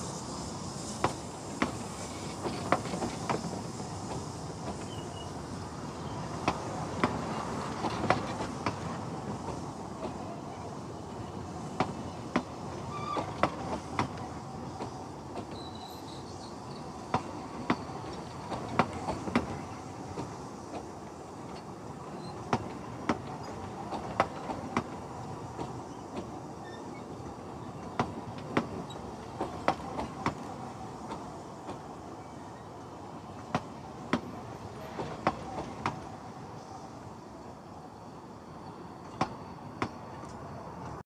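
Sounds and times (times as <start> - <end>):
train coaches rumbling: 0.0 - 41.0.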